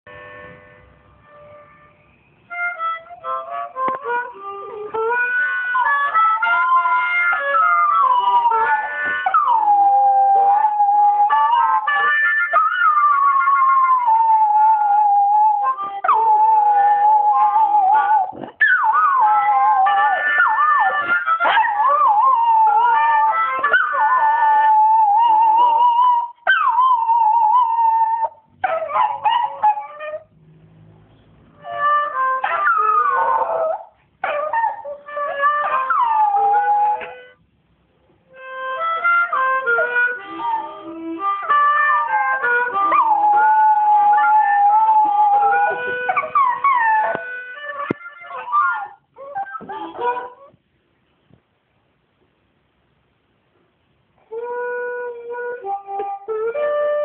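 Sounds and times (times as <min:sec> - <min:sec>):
harmonica playing blues notes: 0:00.1 - 0:25.8, 0:31.6 - 0:33.6, 0:35.0 - 0:37.4, 0:38.3 - 0:50.4, 0:54.3 - 0:57.0
dog howling: 0:05.8 - 0:30.2, 0:32.4 - 0:37.2, 0:39.6 - 0:50.5.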